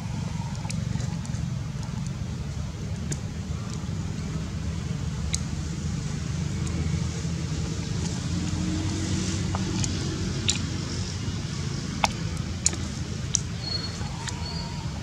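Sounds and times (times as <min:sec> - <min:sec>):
low motor rumble: 0:00.0 - 0:15.0
thin whistle: 0:13.6 - 0:14.8.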